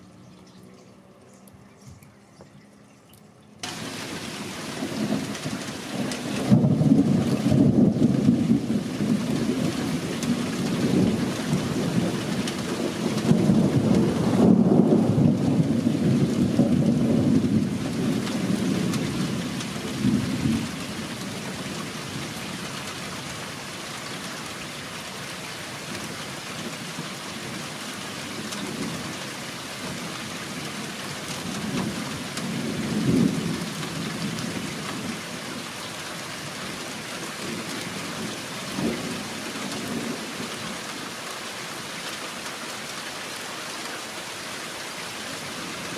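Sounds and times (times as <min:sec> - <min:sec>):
rain falling: 0:03.5 - 0:45.9
rolling thunder: 0:03.6 - 0:22.4, 0:29.8 - 0:35.8, 0:36.4 - 0:40.7.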